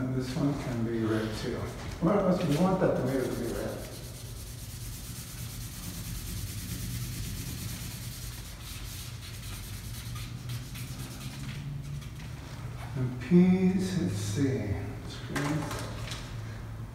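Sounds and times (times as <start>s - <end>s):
low steady hum: 0.0s - 16.9s
marker scratching on paper: 2.4s - 12.0s.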